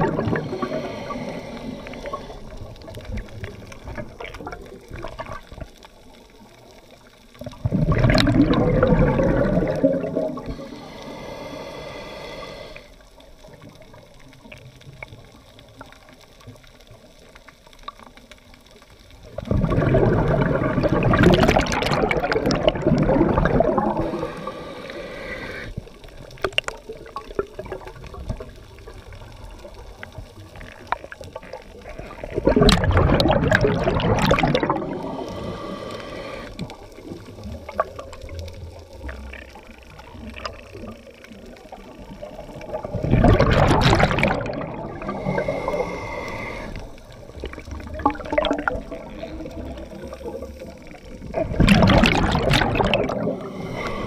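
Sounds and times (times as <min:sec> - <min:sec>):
exhaled bubbles rushing underwater: 0:00.0 - 0:10.9, 0:13.2 - 0:54.0
regulator inhale hiss: 0:00.2 - 0:02.9, 0:10.2 - 0:13.3, 0:23.8 - 0:26.2, 0:34.7 - 0:37.5, 0:45.0 - 0:47.5, 0:53.2 - 0:54.0.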